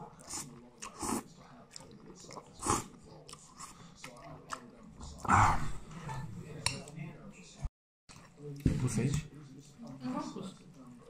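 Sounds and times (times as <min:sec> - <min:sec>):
person slurping and chewing: 0:00.2 - 0:05.8.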